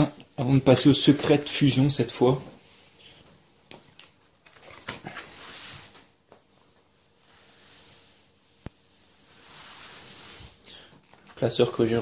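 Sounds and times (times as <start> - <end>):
plastic binder pages rustling: 3.6 - 6.1.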